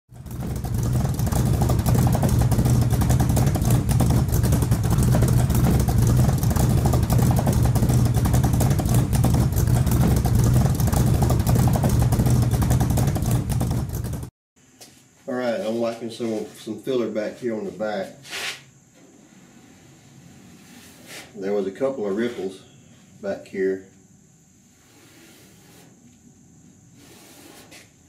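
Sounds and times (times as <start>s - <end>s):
truck engine exhaust: 0.1s - 14.3s.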